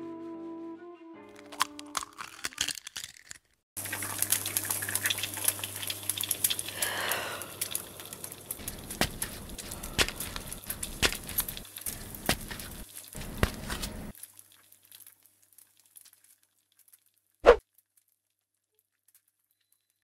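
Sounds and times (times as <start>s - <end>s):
eggshell cracking: 1.3s - 17.2s
egg sizzling in a pan: 3.8s - 18.0s.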